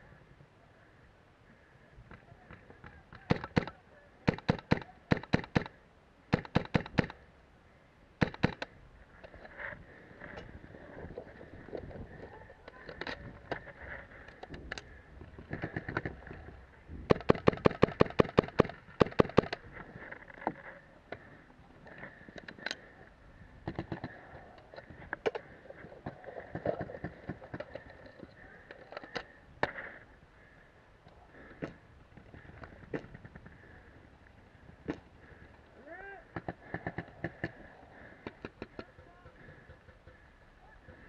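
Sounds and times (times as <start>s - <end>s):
paintball markers firing: 2.4s - 7.2s, 8.2s - 8.8s, 17.1s - 19.6s, 23.6s - 24.2s, 36.3s - 40.2s.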